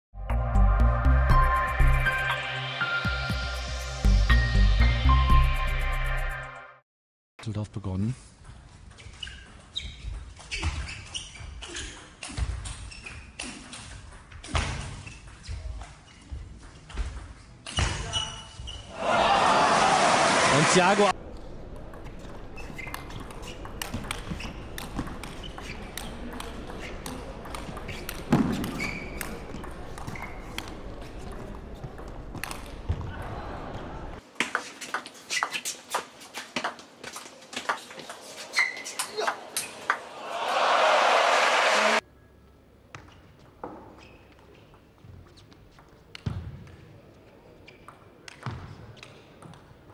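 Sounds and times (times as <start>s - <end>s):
table tennis ball clicking: 21.8s - 32.8s.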